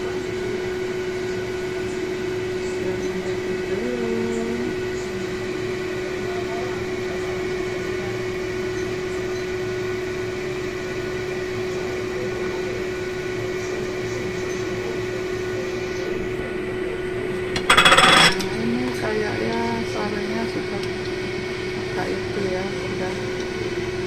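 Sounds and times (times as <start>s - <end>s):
constant hum: 0.0s - 24.0s
pot boiling and bubbling: 0.0s - 24.0s
metallic clatter against pot: 17.5s - 18.6s.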